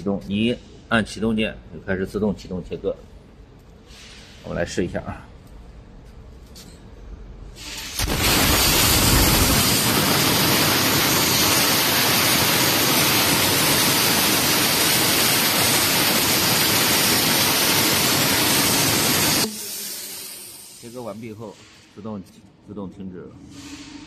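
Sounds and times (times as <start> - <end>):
plasma torch hissing: 7.6 - 22.1.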